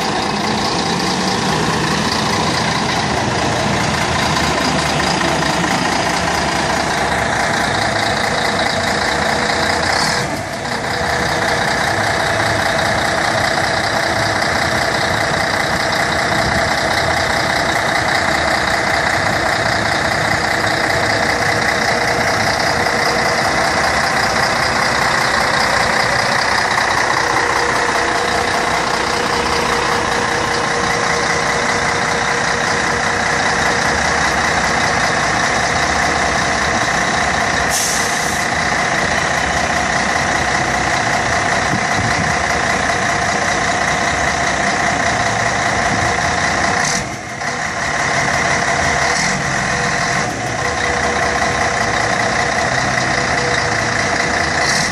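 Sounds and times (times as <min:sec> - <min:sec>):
diesel engine idling: 0:00.0 - 0:54.9
air hiss: 0:37.7 - 0:38.4.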